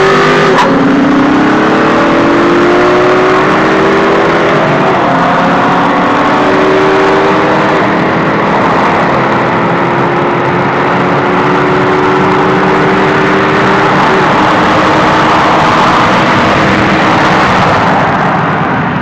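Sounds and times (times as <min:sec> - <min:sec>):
car engine running hard: 0:00.0 - 0:19.0
wind and road noise: 0:00.0 - 0:19.0.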